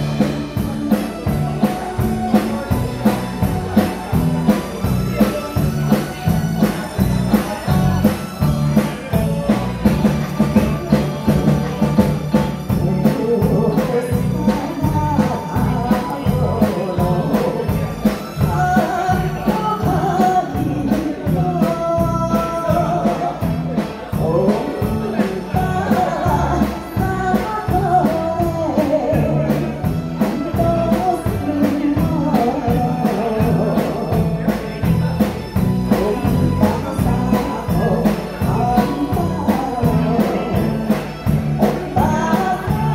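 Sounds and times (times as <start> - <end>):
live band playing: 0.0 - 42.9
woman singing lead vocal: 12.7 - 34.4, 35.9 - 41.0, 41.6 - 42.9.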